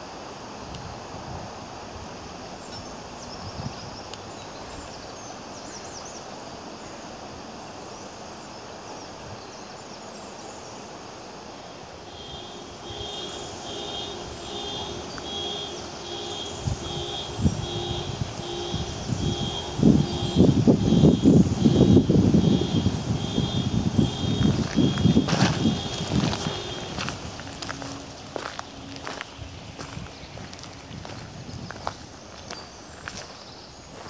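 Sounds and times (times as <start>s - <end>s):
river water over rapids: 24.1s - 31.3s.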